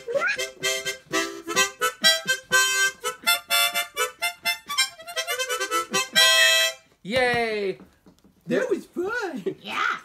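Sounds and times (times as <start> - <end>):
harmonica dance tune: 0.0 - 7.0.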